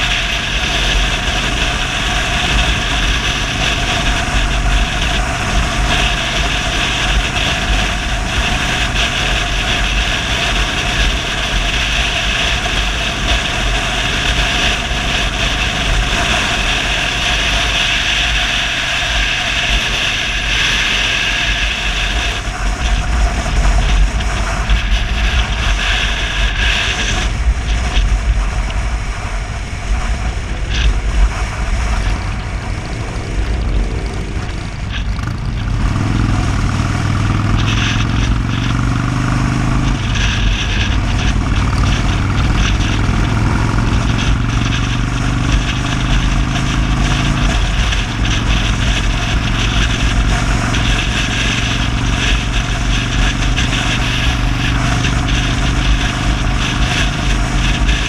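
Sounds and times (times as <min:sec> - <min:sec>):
motorcycle engine running: 0:00.0 - 0:58.0
wind rumble on microphone: 0:00.0 - 0:58.0.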